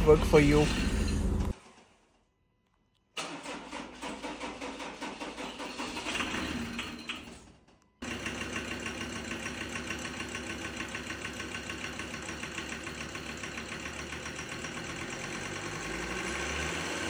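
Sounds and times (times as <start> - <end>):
diesel engine idling with clatter: 0.0 - 1.8, 8.0 - 17.0.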